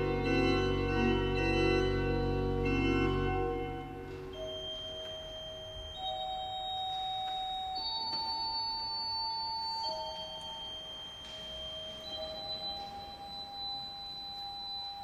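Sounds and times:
pipe organ held notes: 0.0s - 8.2s.

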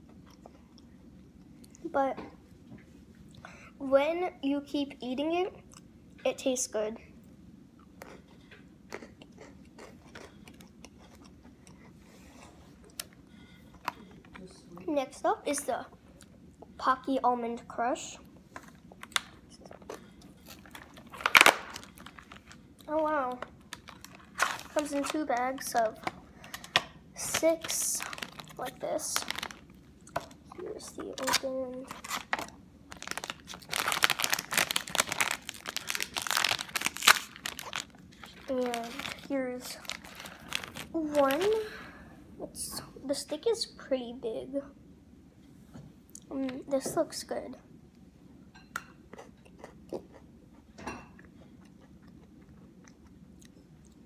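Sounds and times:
child chewing crunchy biscuit: 0.0s - 1.9s, 7.8s - 14.6s, 18.3s - 41.7s, 49.0s - 54.0s
foil snack bag crinkling: 20.4s - 41.7s.

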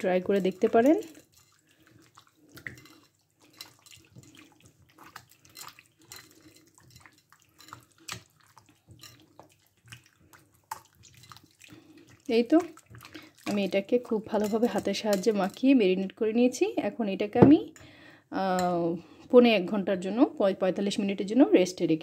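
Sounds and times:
hands squelching wet marinade: 0.0s - 15.8s.

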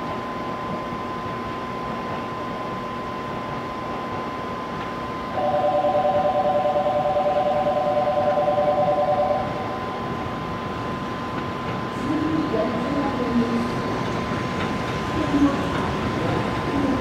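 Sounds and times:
high electronic hum: 5.3s - 10.7s
pulsing two-note warning tone: 5.4s - 9.8s.

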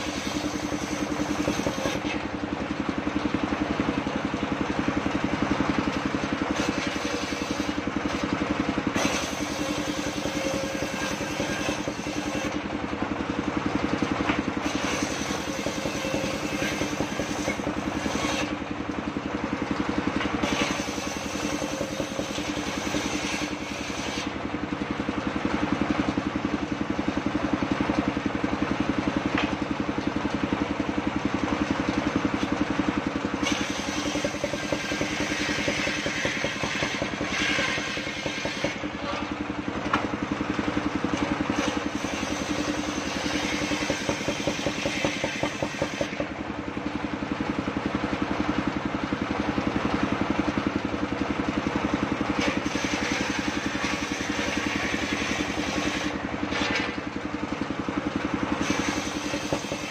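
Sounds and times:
sawmill engine running: 0.0s - 59.9s
saw blade ripping through log: 6.4s - 12.6s, 14.6s - 18.6s, 20.4s - 24.3s, 33.4s - 39.3s, 41.5s - 46.3s, 52.4s - 57.0s, 58.6s - 59.9s.

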